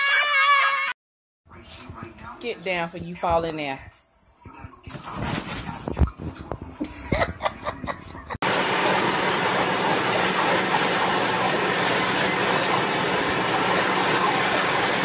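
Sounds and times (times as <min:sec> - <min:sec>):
leaf blower running: 0:08.4 - 0:15.0.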